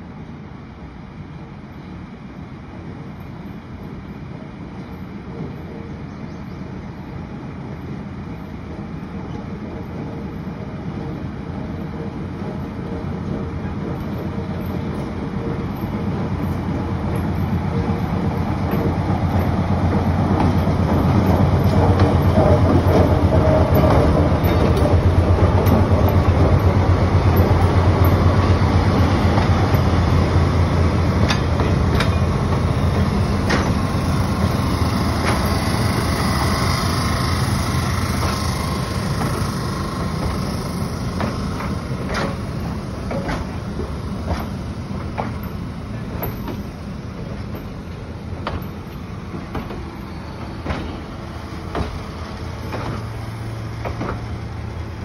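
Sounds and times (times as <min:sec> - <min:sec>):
diesel locomotive passing: 0:00.0 - 0:55.0.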